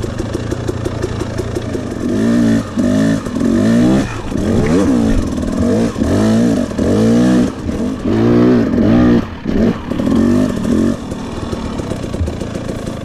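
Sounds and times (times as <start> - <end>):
dirt bike engine revving: 0.0 - 13.0.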